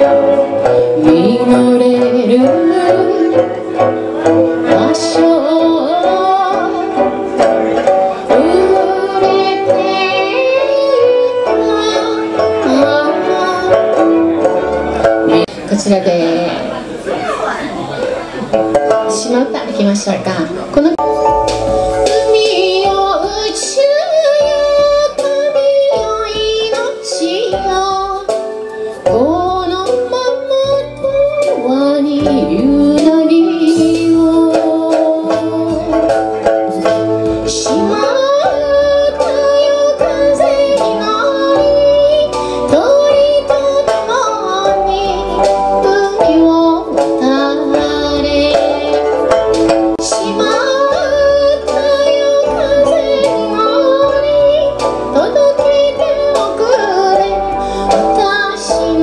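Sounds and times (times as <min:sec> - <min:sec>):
woman singing with vibrato: 0:00.0 - 0:16.9, 0:22.1 - 0:59.0
plucked lute: 0:00.0 - 0:59.0
synthesizer keyboard chords: 0:21.0 - 0:26.7.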